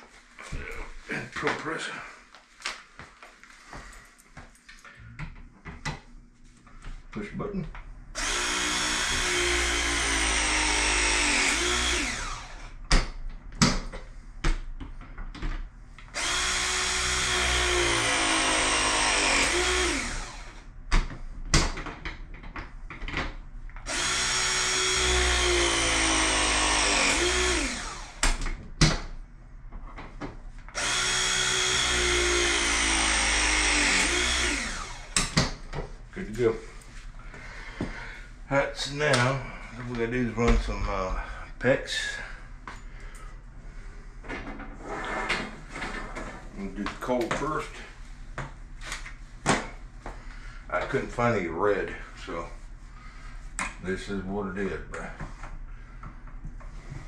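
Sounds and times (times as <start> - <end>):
crimping tool motor whine: 8.2 - 12.7, 16.2 - 20.7, 23.9 - 28.4, 30.8 - 35.3.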